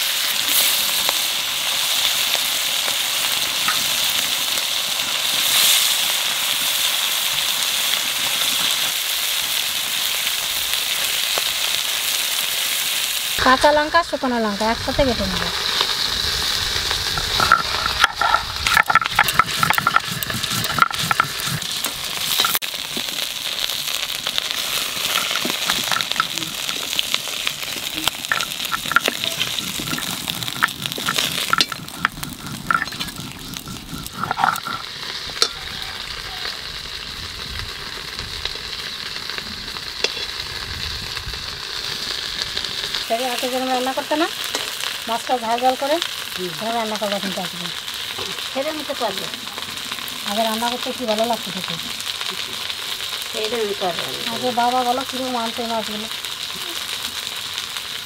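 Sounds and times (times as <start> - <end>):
food sizzling in oil: 0.0 - 58.0
knocks and scrapes in wok: 17.1 - 22.6, 24.9 - 26.9, 27.7 - 35.6.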